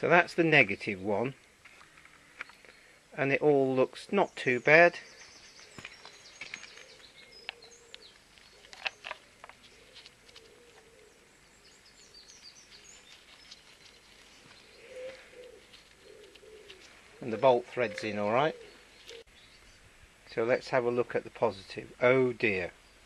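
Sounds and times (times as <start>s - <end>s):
birds chirping and cooing: 4.2s - 19.9s.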